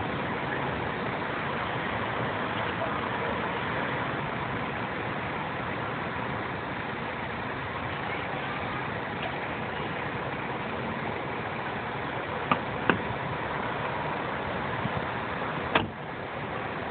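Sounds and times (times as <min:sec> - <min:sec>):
road traffic noise: 0:00.0 - 0:16.9.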